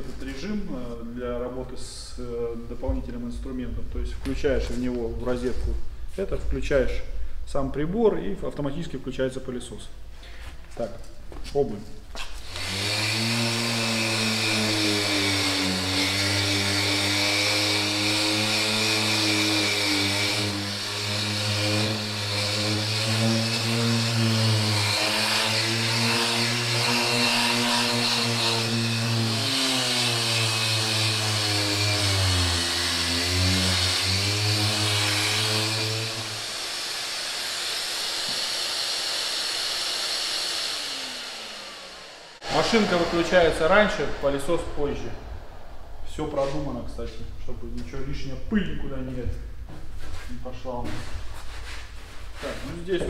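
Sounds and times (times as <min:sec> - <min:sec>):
orbital sander whirring: 0:12.1 - 0:46.7
vacuum cleaner running: 0:36.2 - 0:45.8.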